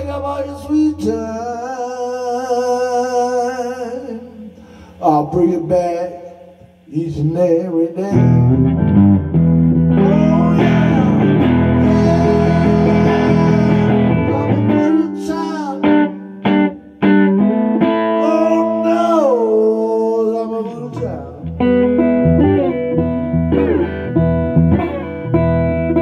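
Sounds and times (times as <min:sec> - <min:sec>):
man singing: 0:00.0 - 0:08.7, 0:09.9 - 0:16.2, 0:18.2 - 0:21.6
electric guitar strumming chords: 0:00.0 - 0:26.0.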